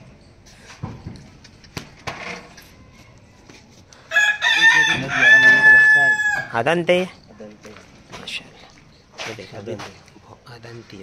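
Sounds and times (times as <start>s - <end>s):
rooster crowing: 4.1s - 6.6s.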